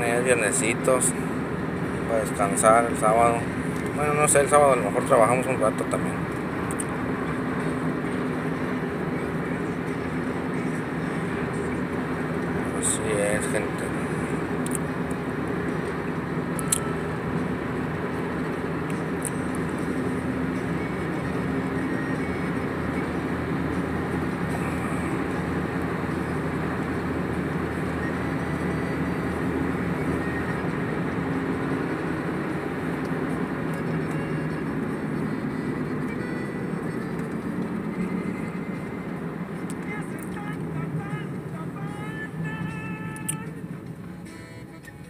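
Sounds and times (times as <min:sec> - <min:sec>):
car cabin engine and road noise: 0:00.0 - 0:45.0.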